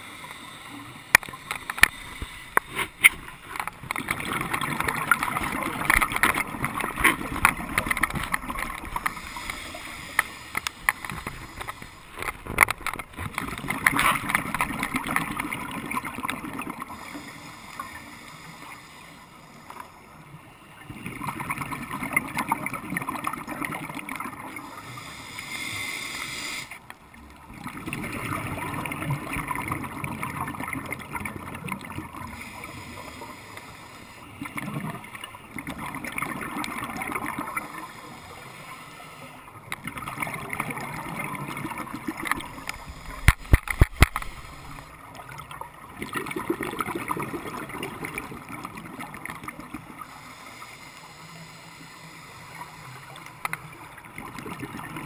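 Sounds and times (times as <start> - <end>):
regulator inhalation hiss: 0.0 - 2.6, 9.0 - 12.2, 17.0 - 20.0, 24.8 - 26.8, 32.3 - 34.4, 37.6 - 39.4, 50.0 - 53.2
bubbling exhalation underwater: 46.0 - 49.6.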